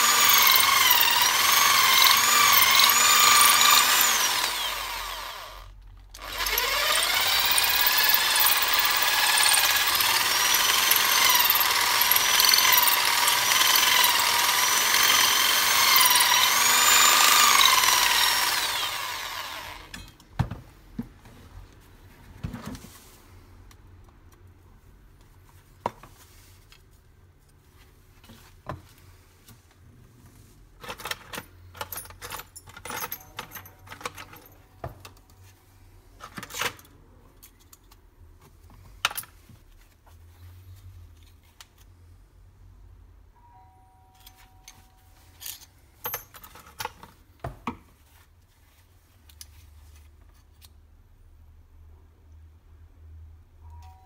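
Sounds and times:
metal tools clinking on workbench: 0:30.8 - 0:34.6.

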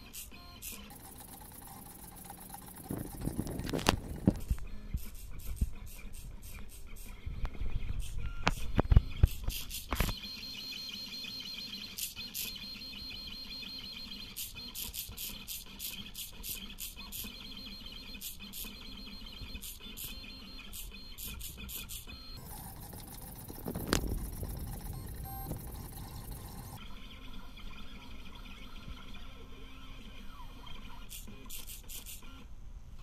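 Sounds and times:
rapid clicks and ticks: 0:00.6 - 0:05.5, 0:22.4 - 0:26.8
stepper motors whining: 0:00.7 - 0:04.6, 0:22.2 - 0:26.8.

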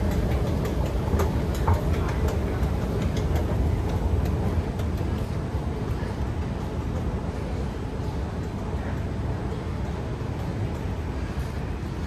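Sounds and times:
faint clicks and rattles: 0:00.0 - 0:07.1
train low rumble: 0:00.0 - 0:12.0.

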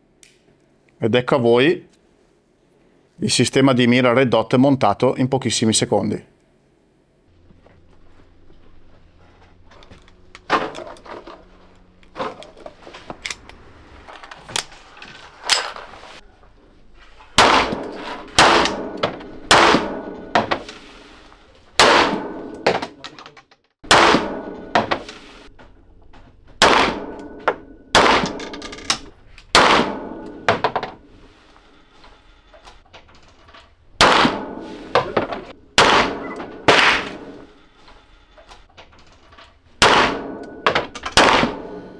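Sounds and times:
pistol shots echoing: 0:17.4 - 0:20.2, 0:21.8 - 0:22.6, 0:23.8 - 0:24.6, 0:26.6 - 0:28.5, 0:29.5 - 0:30.5, 0:34.0 - 0:34.7, 0:35.8 - 0:37.4, 0:39.8 - 0:40.4, 0:41.2 - 0:41.9.

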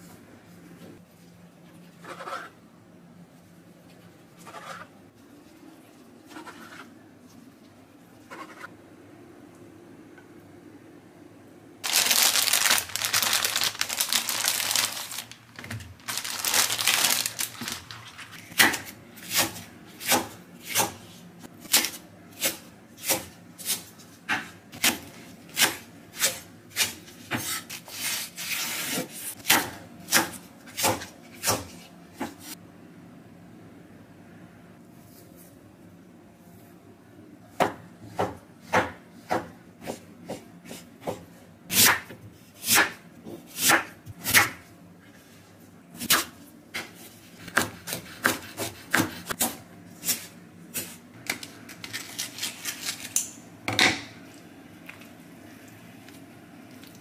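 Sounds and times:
plastic bag crinkling: 0:11.8 - 0:18.5
knife chopping on wooden board: 0:46.8 - 0:49.6.

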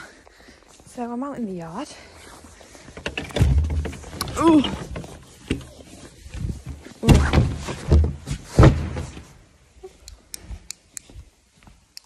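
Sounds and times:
heavy thuds and knocks: 0:02.9 - 0:05.7, 0:06.4 - 0:09.4.

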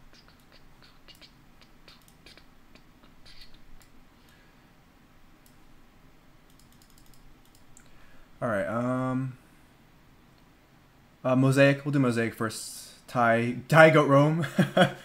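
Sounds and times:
keyboard and mouse clicks: 0:00.1 - 0:04.0, 0:06.5 - 0:07.9.

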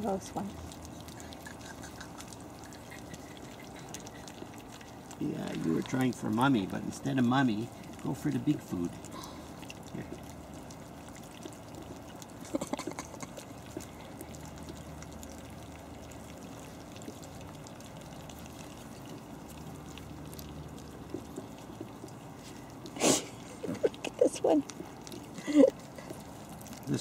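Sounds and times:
puppies smacking and lapping food: 0:00.0 - 0:27.0.

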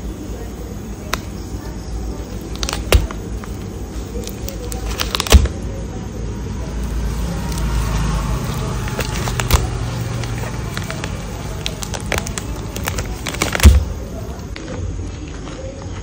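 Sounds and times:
plastic bag crinkling: 0:01.0 - 0:05.7, 0:06.7 - 0:14.6.

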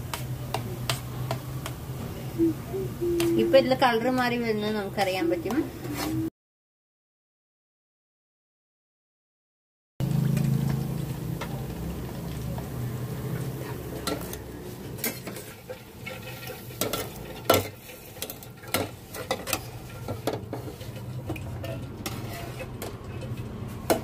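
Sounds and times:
frying in hot oil sizzle: 0:00.0 - 0:02.4, 0:10.0 - 0:24.0.

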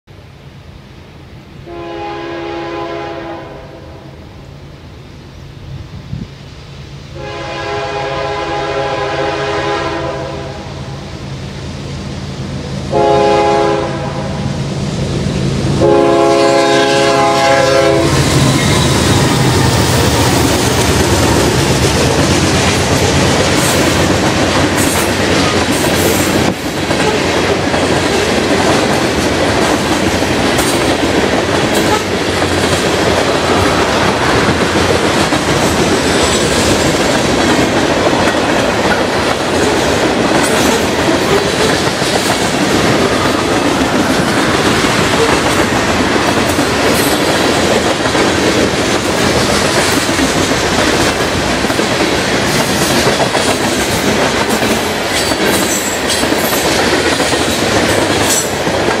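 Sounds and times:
train horn blasts: 0:01.6 - 0:04.2, 0:07.1 - 0:11.0, 0:12.9 - 0:14.6, 0:15.8 - 0:19.4
freight cars clickety-clack and rumble: 0:17.2 - 0:59.0.

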